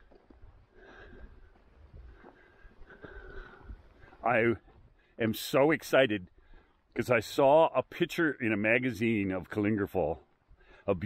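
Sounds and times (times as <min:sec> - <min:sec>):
wind rumble on microphone: 0:00.0 - 0:04.0.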